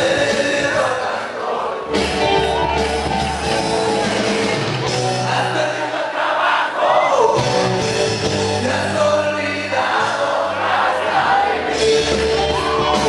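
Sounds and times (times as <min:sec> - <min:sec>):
person singing: 0:00.0 - 0:03.8
loud dance music: 0:00.0 - 0:06.6, 0:07.4 - 0:13.0.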